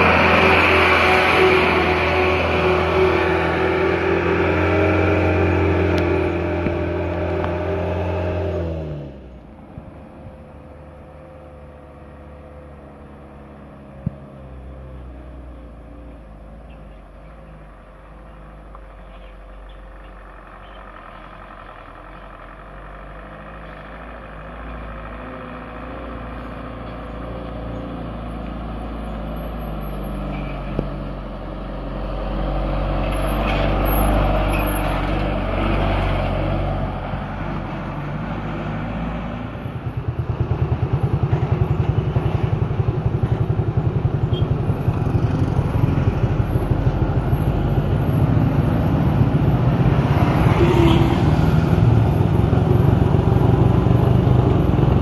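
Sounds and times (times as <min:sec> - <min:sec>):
truck engine passing: 0:00.0 - 0:55.0.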